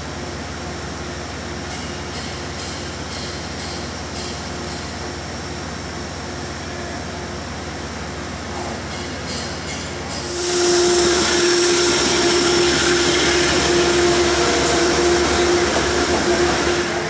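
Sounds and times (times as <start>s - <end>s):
diesel locomotive engine: 0.0s - 17.0s
train rumble: 8.4s - 17.0s.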